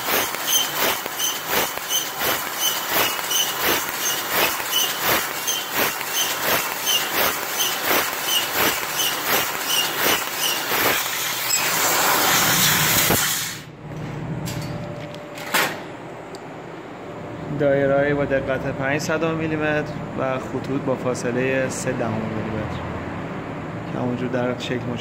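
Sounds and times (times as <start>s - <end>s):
laser cutter hissing: 0.0s - 13.7s.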